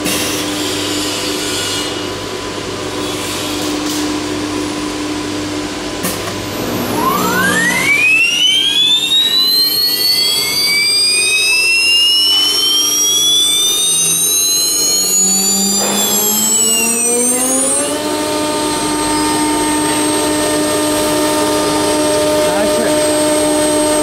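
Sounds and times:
router spindle whine: 5.6 - 24.0.

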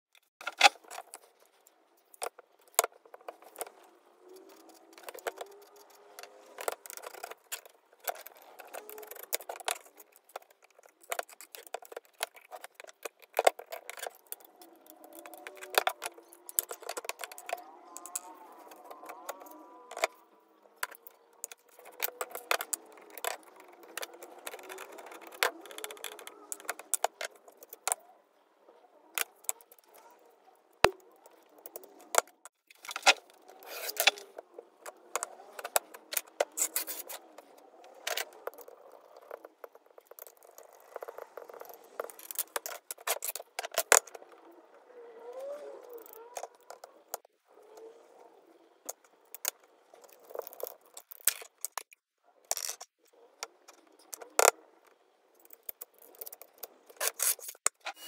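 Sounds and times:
metal clicks and scrapes: 0.1 - 44.6, 48.8 - 58.0
faint squeaks: 44.1 - 51.1.

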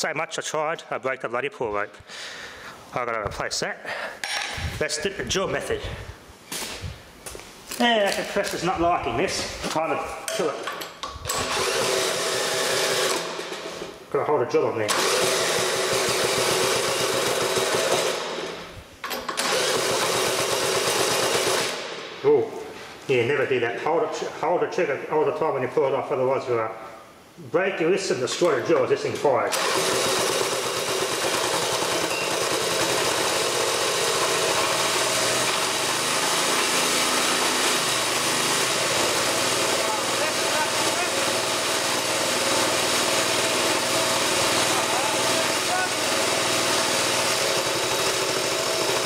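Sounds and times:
cordless drill cranking engine: 11.2 - 13.9, 14.9 - 18.6, 19.2 - 21.8, 29.5 - 49.0.

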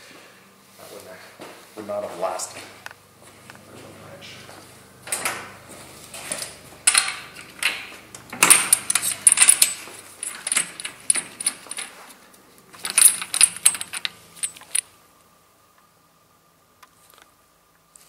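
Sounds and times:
metal hand tools clinking: 8.4 - 12.0, 12.8 - 14.8.

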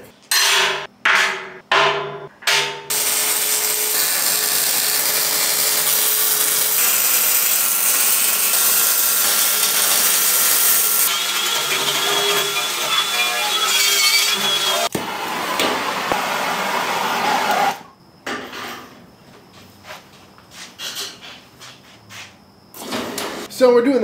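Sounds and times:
arc welding hiss: 2.9 - 12.8
angle grinder whine: 2.9 - 17.9.

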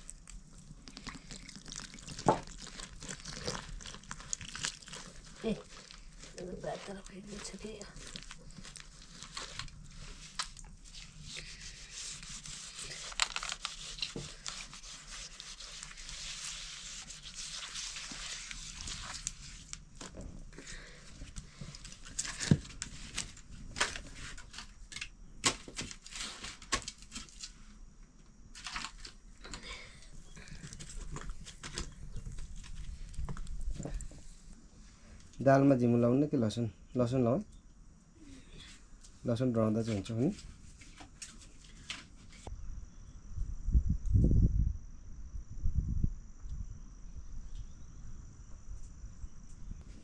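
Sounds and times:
rustling and tearing: 0.0 - 27.6, 28.6 - 29.2.

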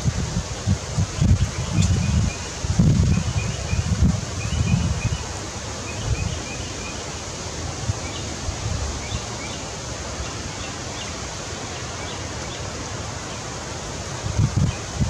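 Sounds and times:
wind rumbling on microphone: 0.0 - 6.6, 7.6 - 9.3, 13.9 - 15.0
outdoor hiss: 0.0 - 15.0.

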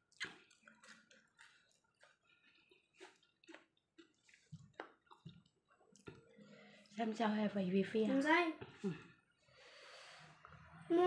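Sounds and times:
wet clicks and squishes: 0.0 - 6.3.

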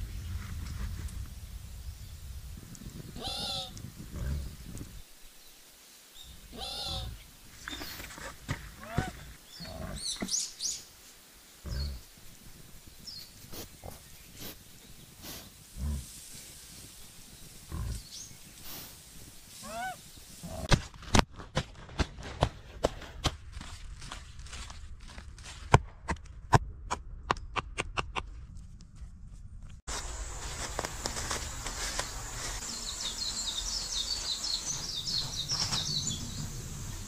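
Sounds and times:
birds chirping: 1.9 - 11.0, 11.7 - 12.1, 16.6 - 20.7, 29.9 - 37.0
wild boars grunting: 8.7 - 10.3, 17.7 - 18.2
sharp knocks and cracks: 20.7 - 28.4.

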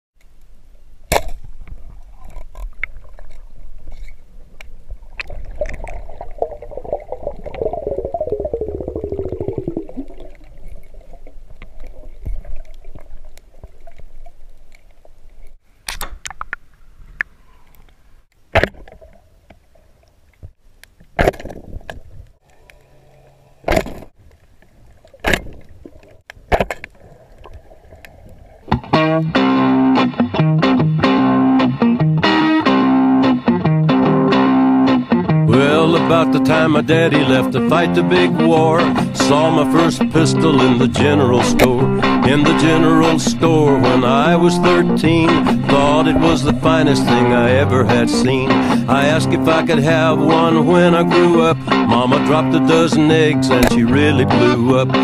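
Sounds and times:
underwater water rush: 4.8 - 14.8, 38.7 - 49.8
rattling drone falling in pitch: 6.8 - 10.2.

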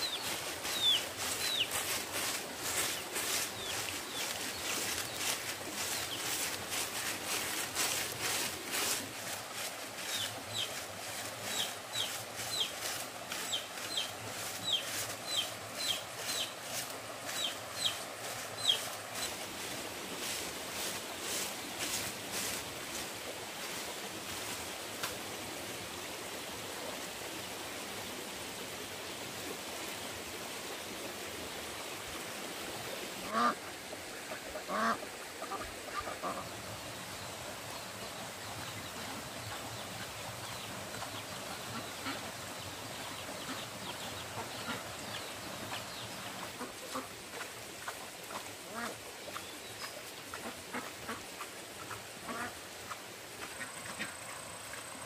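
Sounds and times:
steady background hiss: 0.0 - 55.0
waterfowl calling: 33.3 - 33.6, 34.3 - 36.5, 48.7 - 49.0, 51.9 - 54.4.

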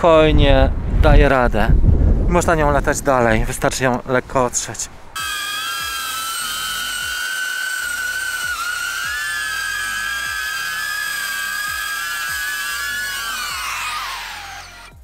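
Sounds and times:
drone propellers whining: 5.2 - 15.0.

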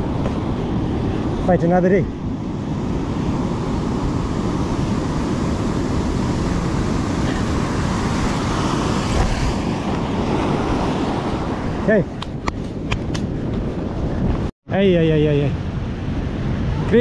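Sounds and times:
surf breaking on shore: 0.0 - 13.2
wind on microphone: 0.0 - 17.0.

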